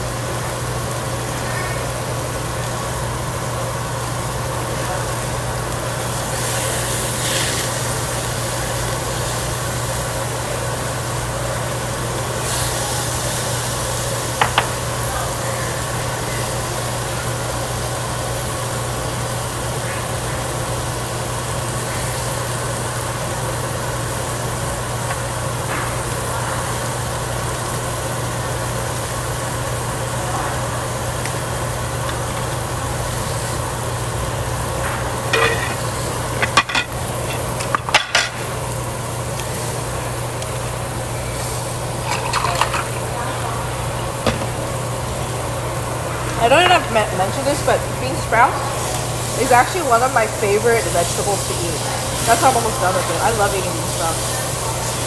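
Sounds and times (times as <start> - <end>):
exhaust fan humming: 0.0 - 55.0.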